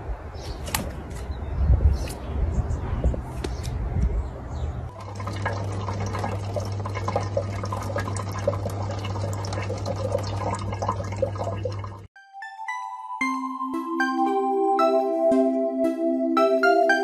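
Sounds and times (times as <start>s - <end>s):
drips and splashes: 4.9s - 12.1s
water running from a tap: 4.9s - 12.1s.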